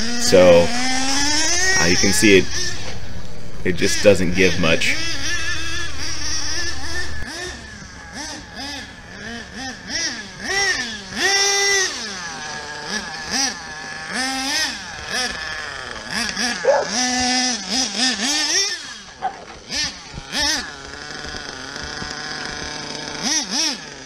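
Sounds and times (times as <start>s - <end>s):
low rumble: 0.0s - 7.3s
small engine revving: 0.0s - 24.0s.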